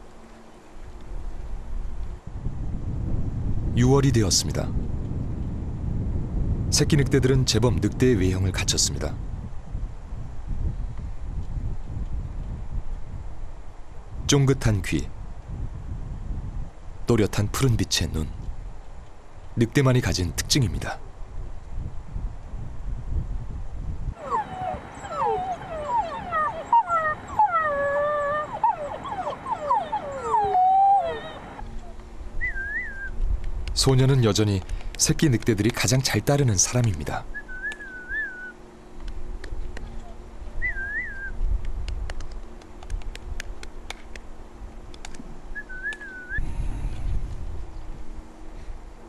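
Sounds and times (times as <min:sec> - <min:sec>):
wolf pup howling: 0:24.2 - 0:33.0
wolf pups whining and yipping: 0:24.2 - 0:33.1
wavering high whistle: 0:32.4 - 0:33.1, 0:40.6 - 0:41.4, 0:45.6 - 0:46.4.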